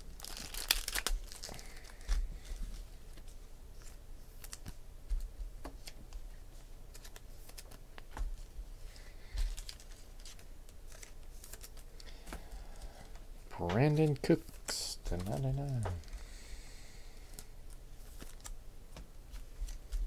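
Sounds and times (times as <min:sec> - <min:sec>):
trading cards clicking and tapping: 0:13.1 - 0:16.0.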